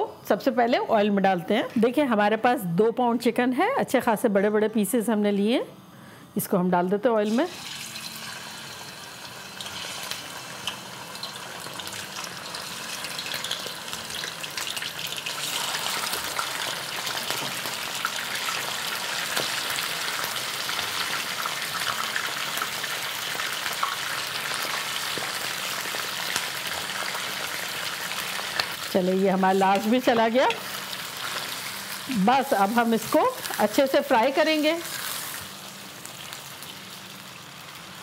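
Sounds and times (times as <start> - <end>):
chicken sizzling in hot oil: 7.3 - 38.0.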